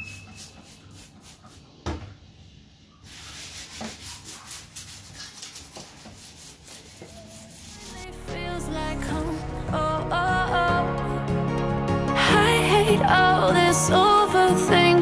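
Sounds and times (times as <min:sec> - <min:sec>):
cloth wiping a countertop: 0:00.1 - 0:08.0.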